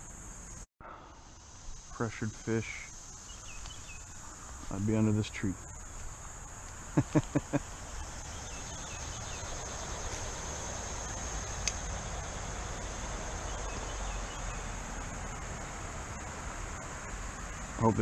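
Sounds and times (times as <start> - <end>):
insects droning: 0.0 - 18.0
sharp clicks: 11.6 - 11.8.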